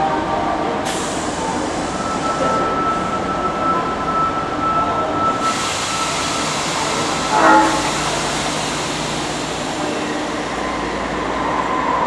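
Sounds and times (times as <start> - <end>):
subway train rumble and hiss: 0.0 - 12.0
short train horn toot: 7.2 - 8.6.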